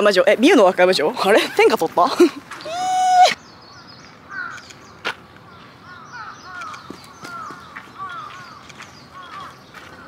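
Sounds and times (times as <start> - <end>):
birds calling: 0.0 - 10.0
sharp click: 4.5 - 4.8, 6.6 - 6.9.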